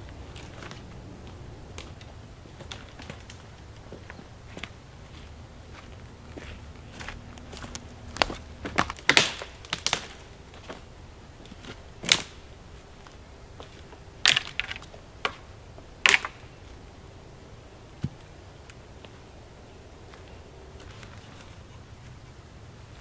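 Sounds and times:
dry sticks snapping: 0.0 - 5.2, 6.4 - 10.8, 11.4 - 12.5, 13.6 - 16.5.

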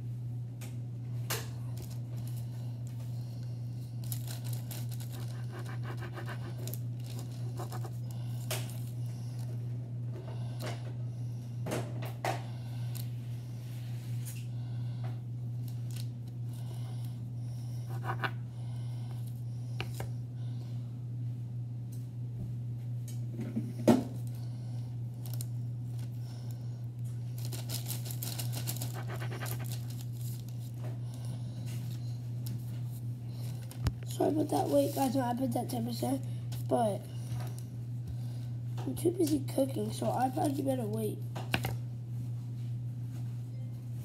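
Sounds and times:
steady low hum: 0.0 - 44.0
knife scraping and tapping on paper: 17.9 - 18.4.

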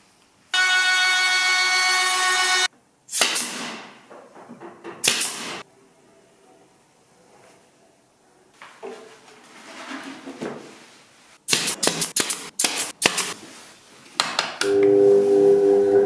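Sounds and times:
nail gun shots: 3.1 - 4.0, 5.0 - 5.6, 11.5 - 13.3.

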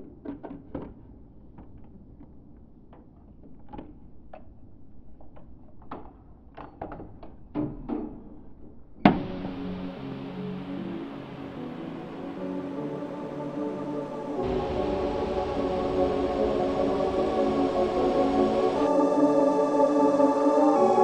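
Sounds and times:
music: 9.1 - 21.0.

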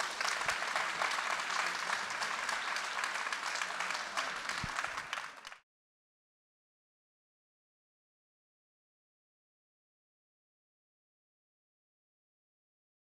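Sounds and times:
audience clapping: 0.0 - 5.6.

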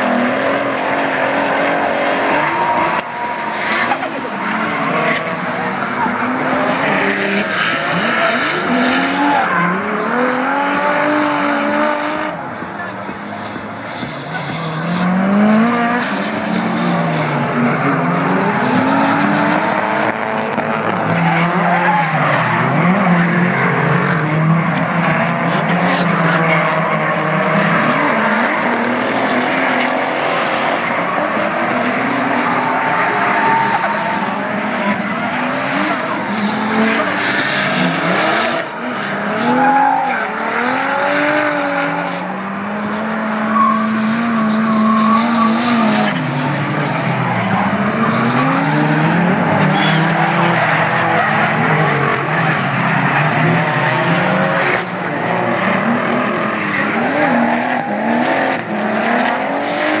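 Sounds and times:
car engines revving: 0.0 - 60.0
tyres screeching: 30.9 - 38.4.

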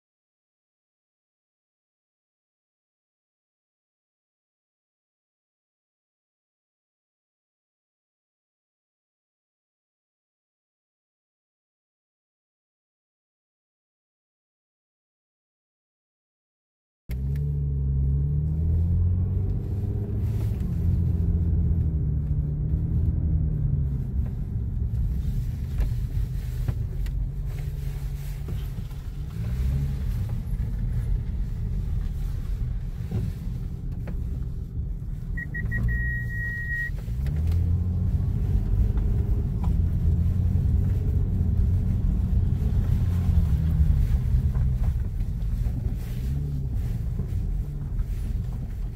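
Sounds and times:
car engine and road rumble: 17.1 - 48.9
electronic beep: 35.4 - 36.9.

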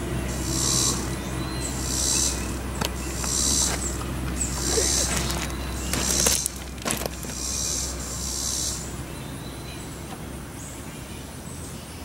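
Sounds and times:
insects buzzing: 0.0 - 12.0.

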